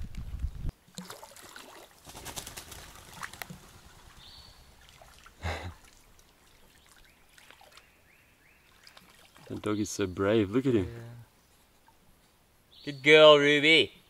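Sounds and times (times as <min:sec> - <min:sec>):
water dripping: 0:00.8 - 0:02.1, 0:02.8 - 0:08.0, 0:08.6 - 0:10.0.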